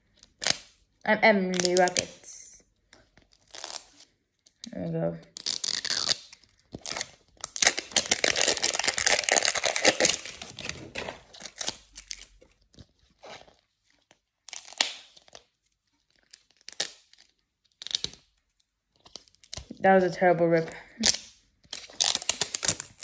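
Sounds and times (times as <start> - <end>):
plastic wrapper tearing: 0.0 - 0.8, 1.4 - 2.3, 2.9 - 19.8, 20.9 - 23.0
plastic crinkles: 5.3 - 19.8, 20.7 - 23.0.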